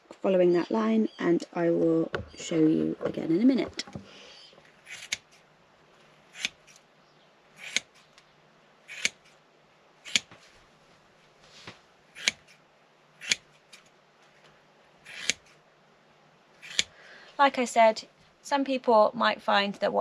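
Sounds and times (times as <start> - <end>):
scissors snipping through foam: 4.8 - 5.4, 6.3 - 6.8, 7.6 - 8.0, 8.9 - 9.3, 10.1 - 10.3, 12.2 - 12.6, 13.2 - 13.9, 15.1 - 15.6, 16.6 - 16.9.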